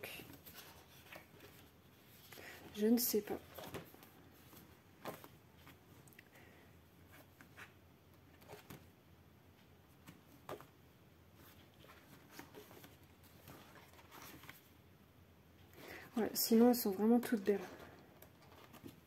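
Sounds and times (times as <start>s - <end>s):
paper rustling: 0.1s - 5.9s, 10.0s - 14.8s, 17.6s - 19.0s.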